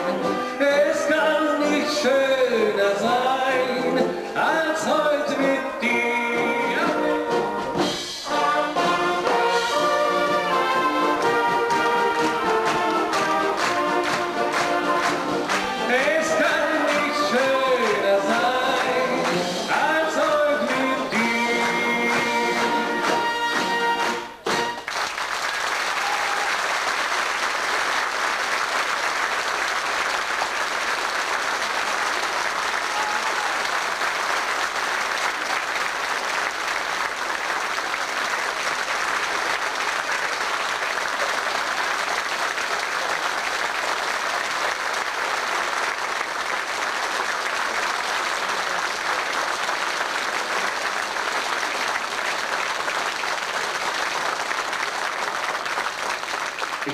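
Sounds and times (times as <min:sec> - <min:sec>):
brass and woodwind band chord: 0:08.2 - 0:15.9
audience applauding: 0:08.4 - 0:56.9.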